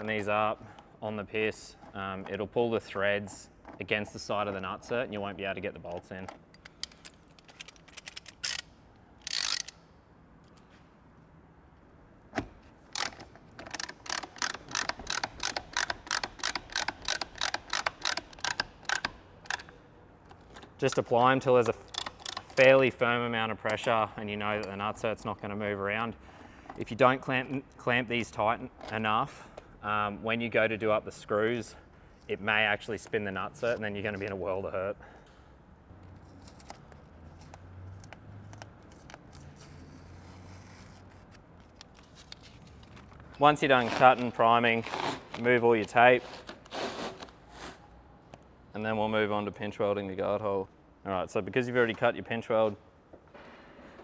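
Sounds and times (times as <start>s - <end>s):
rivet nut tool clicking: 6.3s - 9.8s, 12.9s - 22.8s.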